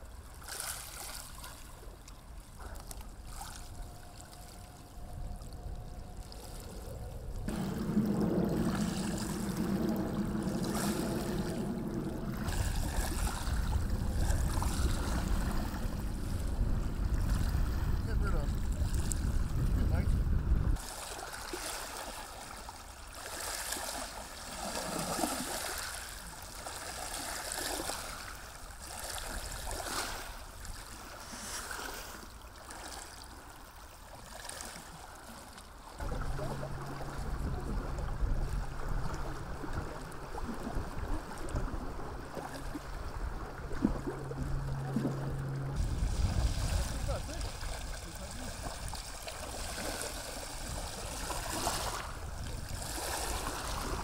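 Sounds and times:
water lapping and splashing: 0.0 - 54.0
low hum with rumble: 1.7 - 20.8, 35.7 - 54.0.

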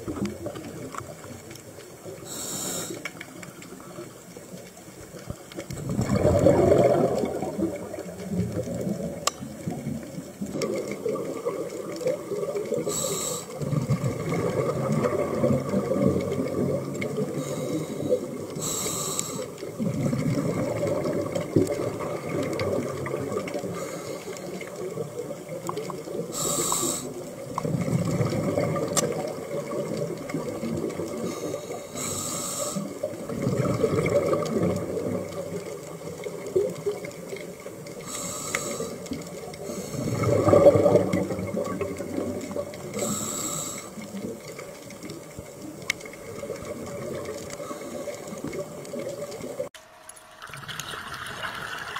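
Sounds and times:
exhaled bubbles gurgling: 0.0 - 51.9
regulator inhale hiss: 2.1 - 3.8, 12.7 - 13.7, 17.2 - 19.7, 23.6 - 24.7, 26.1 - 27.4, 31.1 - 33.1, 38.0 - 40.3, 42.9 - 44.2, 47.5 - 48.5.

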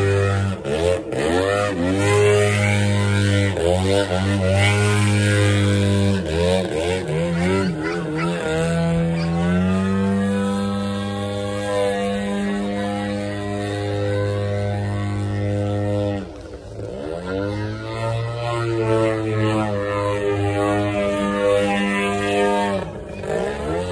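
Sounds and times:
model airplane motor and propeller: 0.0 - 23.9
steady low drone: 0.0 - 23.9.

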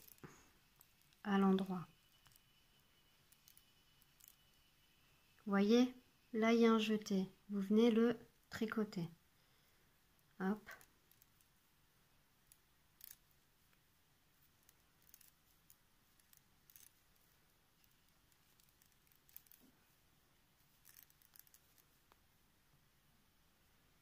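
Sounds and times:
knitting needles clicking: 0.0 - 2.6, 3.2 - 4.7, 10.7 - 11.6, 12.4 - 13.8, 14.4 - 19.8, 20.7 - 22.2.

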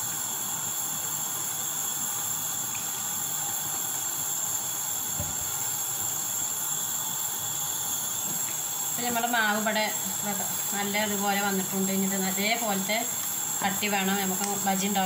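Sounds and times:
steady hiss with high whine: 0.0 - 15.0
dull thump: 5.2 - 5.5.

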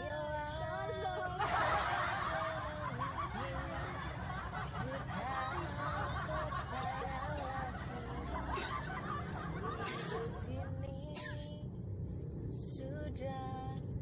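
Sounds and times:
car interior rumble: 0.0 - 14.0
giggling and laughter: 0.8 - 10.8.

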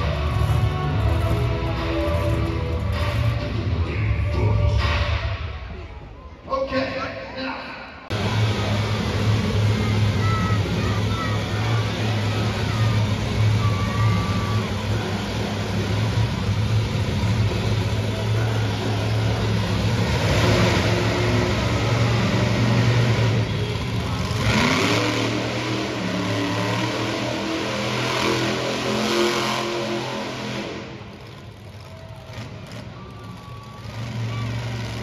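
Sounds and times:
truck engine revving: 0.0 - 5.6, 8.1 - 35.0.

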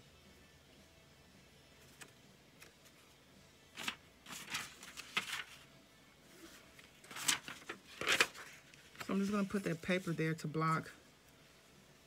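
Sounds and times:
paper tag rustling and scraping: 3.8 - 5.6, 6.4 - 10.3.

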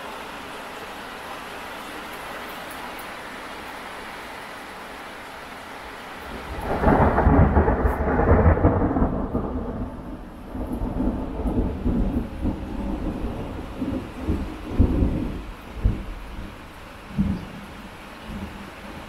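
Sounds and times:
rain hissing: 0.0 - 19.0
thunder rolling: 6.2 - 17.6.

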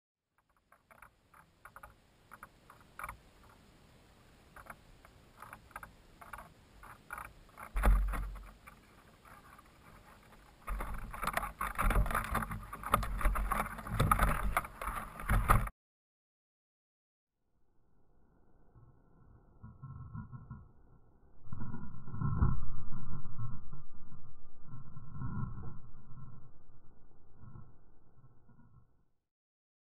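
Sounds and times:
faint knocks and clicks: 0.4 - 3.7, 4.5 - 15.7.

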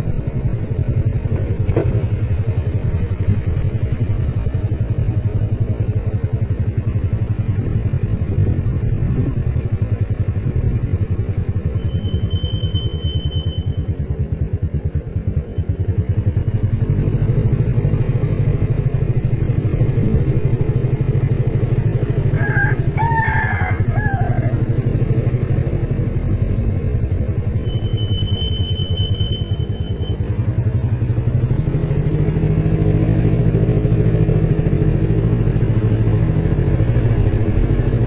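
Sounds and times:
motorcycle engine running: 0.0 - 38.0
rooster crowing: 22.3 - 24.8.

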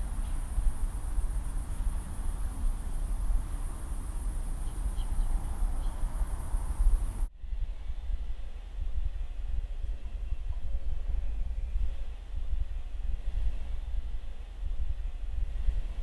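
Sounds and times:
insects chirring: 0.0 - 7.3.

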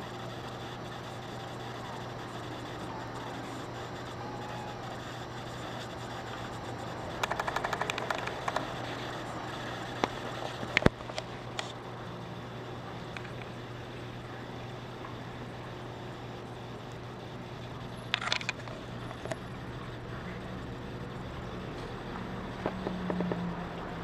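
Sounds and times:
low background hum: 0.0 - 24.0
kitten playing clicks and knocks: 7.2 - 8.8.

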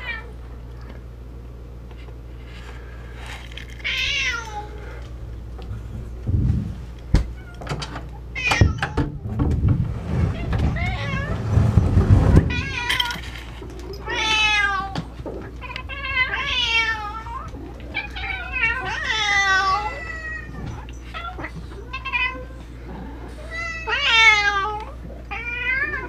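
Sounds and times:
cats meowing: 3.6 - 5.0, 7.2 - 9.2, 10.3 - 11.6, 12.3 - 26.0.

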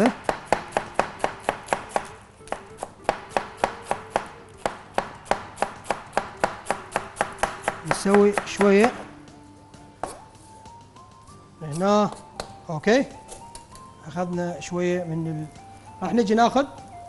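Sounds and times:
knife chopping lettuce on board: 0.0 - 9.1, 10.0 - 10.2.

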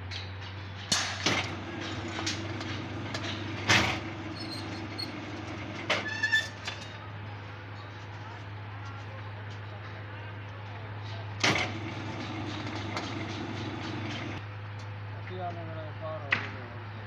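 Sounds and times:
steel bars clanking: 0.9 - 7.1, 11.4 - 14.4
bending machine humming: 1.1 - 7.2, 11.4 - 14.4
high squeal: 4.0 - 6.9.

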